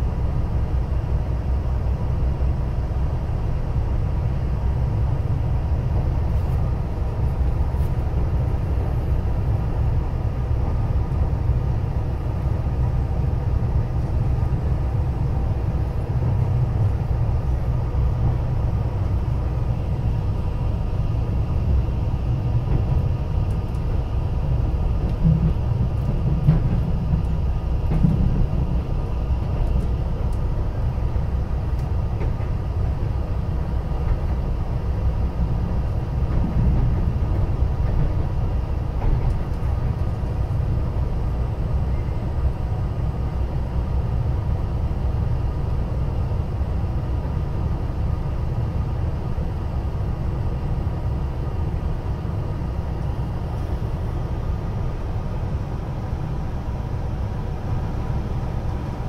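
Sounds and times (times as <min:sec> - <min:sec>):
train wheels rumbling on rails: 0:00.0 - 0:59.0.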